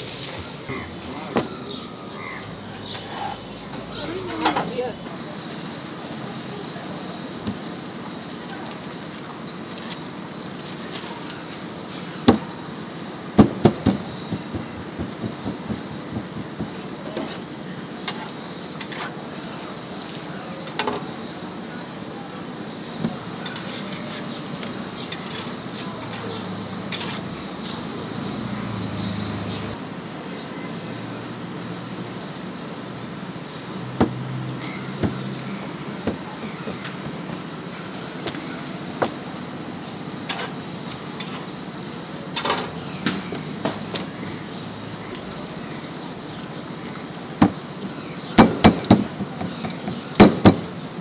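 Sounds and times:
street stall background noise: 0.0s - 51.0s
loud sharp knocks: 13.4s - 16.8s, 35.0s - 35.3s, 36.0s - 37.4s, 48.4s - 50.7s.

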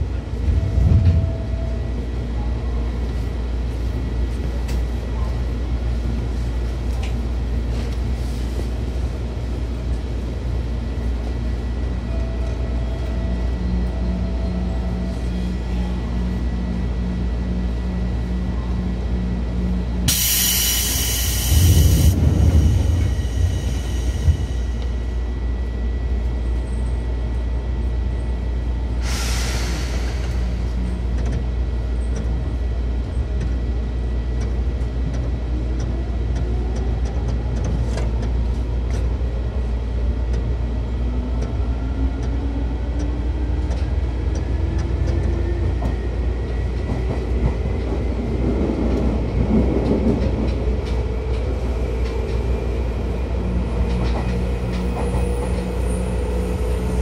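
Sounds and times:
air hiss: 20.1s - 22.2s, 29.0s - 30.5s.

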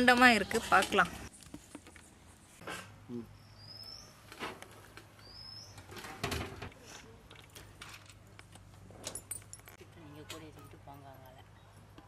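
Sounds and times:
rising bird chirp: 3.3s - 4.3s, 5.2s - 5.9s
light handling clicks and rustles: 5.8s - 10.8s.

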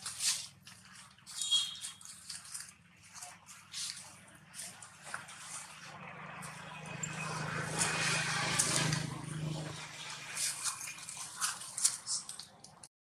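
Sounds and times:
light clicks and rustles: 0.0s - 5.8s, 10.4s - 12.9s
vehicle engine hum: 2.0s - 12.9s.

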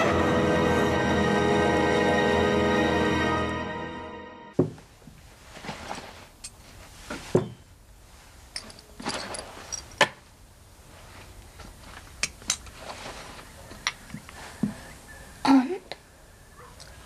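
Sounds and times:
faint rustling: 4.8s - 15.4s.

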